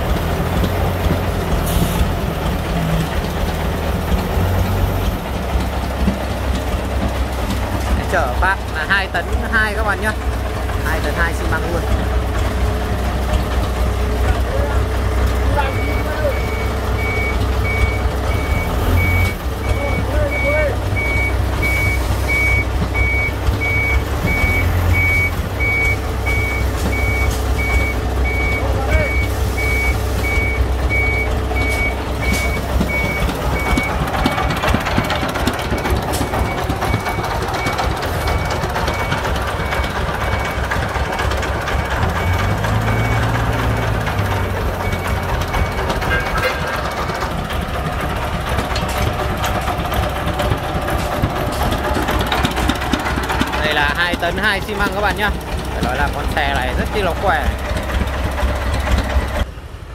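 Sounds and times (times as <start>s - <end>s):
diesel engines humming: 0.0s - 59.9s
reversing alarm beeping: 15.5s - 41.0s, 42.1s - 46.6s.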